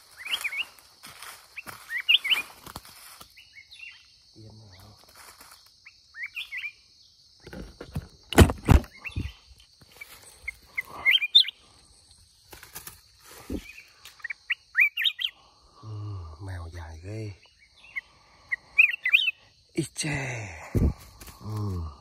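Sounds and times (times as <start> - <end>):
bird chirping calls: 0.0 - 0.8, 1.5 - 2.6, 3.2 - 5.0, 5.6 - 7.2, 8.7 - 12.6, 13.4 - 19.9
thumps and rustles of dry leaves: 0.0 - 3.4, 5.0 - 5.7, 7.4 - 10.3, 12.4 - 13.8.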